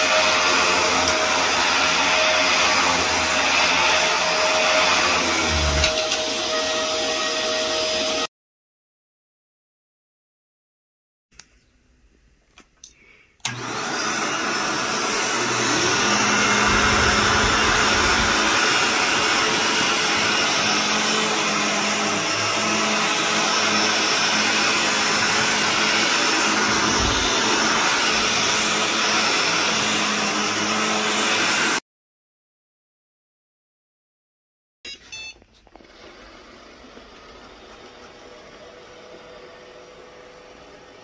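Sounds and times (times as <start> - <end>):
vacuum cleaner running: 0.0 - 8.3, 13.4 - 31.8, 35.7 - 41.0.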